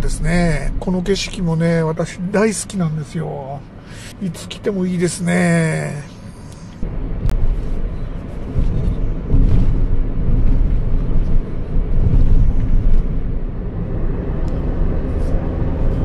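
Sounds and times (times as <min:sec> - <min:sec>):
car engine: 0:00.0 - 0:16.0
road and wind noise: 0:00.0 - 0:16.0.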